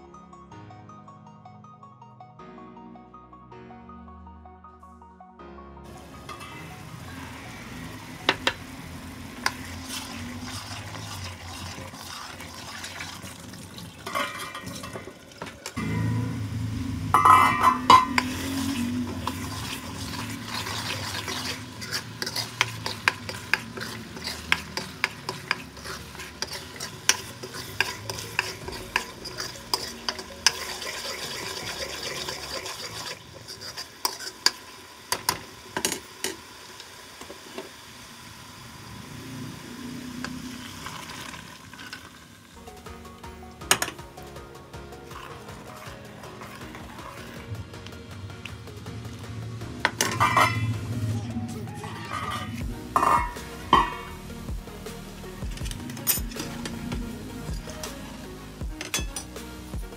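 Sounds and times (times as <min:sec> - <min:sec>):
masala sizzling in a pan: 0:05.9 - 0:59.9
metal ladle scraping pan: 0:06.2 - 0:16.4, 0:17.0 - 0:36.4, 0:45.0 - 0:47.7, 0:49.8 - 0:51.0, 0:51.7 - 0:54.2.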